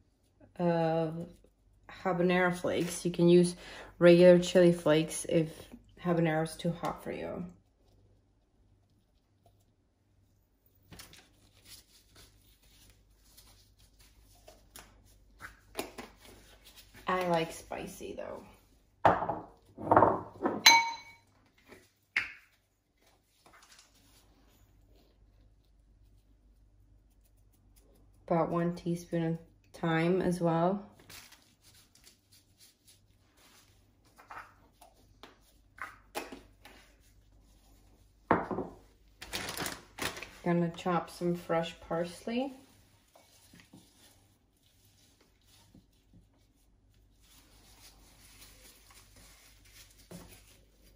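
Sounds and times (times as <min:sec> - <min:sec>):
glass jar knocking: 0:19.1 - 0:21.2
plastic bag rustling: 0:39.1 - 0:40.9, 0:42.5 - 0:50.9.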